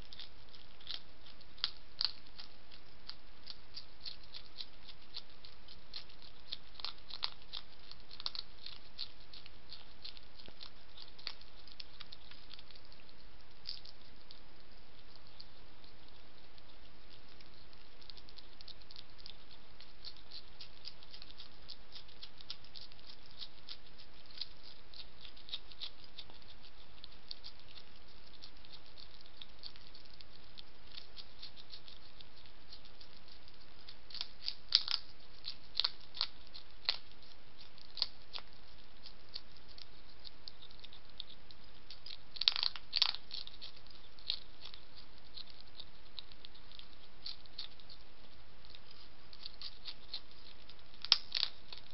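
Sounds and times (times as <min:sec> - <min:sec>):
hedgehog crunching food: 0:00.0 - 0:51.9.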